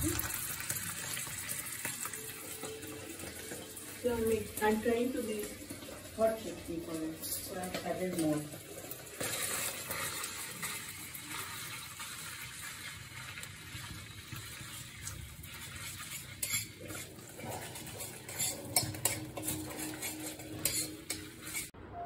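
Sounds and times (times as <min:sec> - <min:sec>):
food sizzling in oil: 0:00.0 - 0:21.8
utensil scraping metal pan: 0:15.6 - 0:21.8
utensil clinking against pan: 0:16.4 - 0:21.7.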